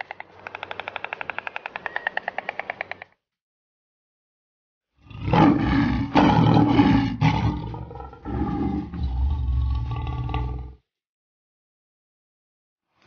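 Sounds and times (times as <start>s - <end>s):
lion roaring: 5.0s - 10.8s.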